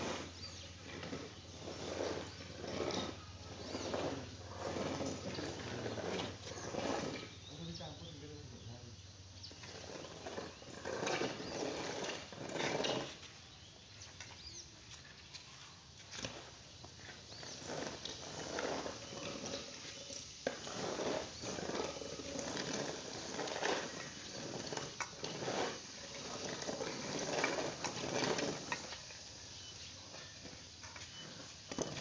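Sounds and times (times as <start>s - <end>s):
rice grain rustling underfoot: 9.5s - 32.0s.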